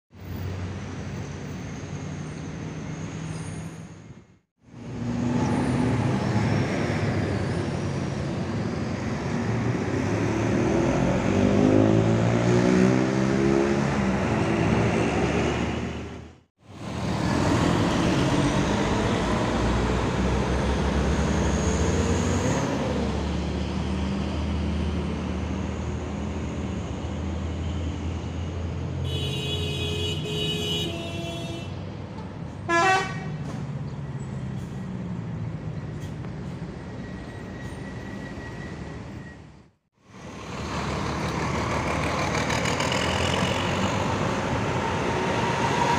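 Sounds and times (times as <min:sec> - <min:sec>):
coach diesel engines accelerating: 0:00.2 - 0:29.0, 0:31.8 - 0:45.9
vehicle horn: 0:29.0 - 0:31.8, 0:32.7 - 0:33.4.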